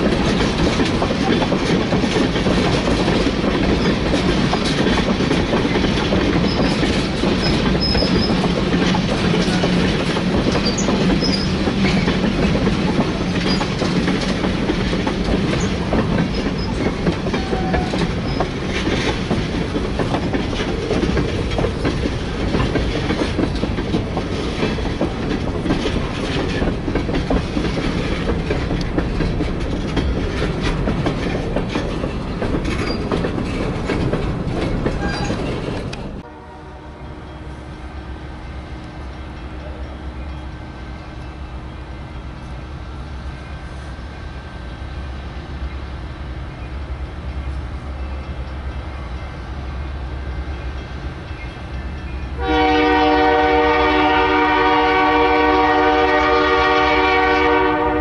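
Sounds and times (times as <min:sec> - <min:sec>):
freight train cars rolling past: 0:00.0 - 0:58.0.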